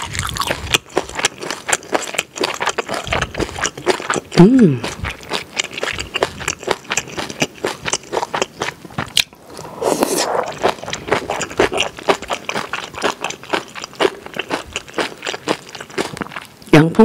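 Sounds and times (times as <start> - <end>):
wet chewing and smacking: 0.0 - 16.7
slurp: 9.4 - 16.4.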